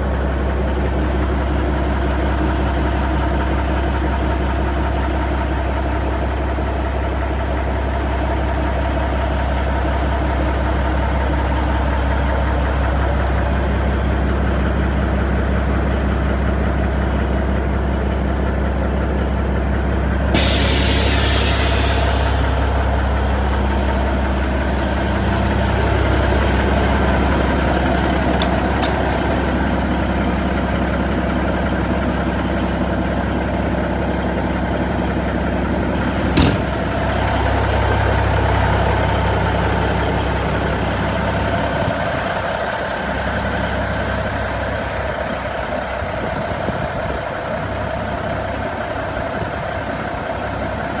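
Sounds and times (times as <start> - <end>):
diesel engine idling: 0.0 - 51.0
sharp knock: 36.4 - 36.8.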